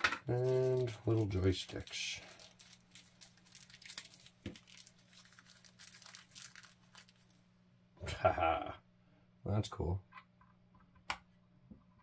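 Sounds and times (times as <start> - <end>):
plastic packaging crinkling: 0.3 - 7.4.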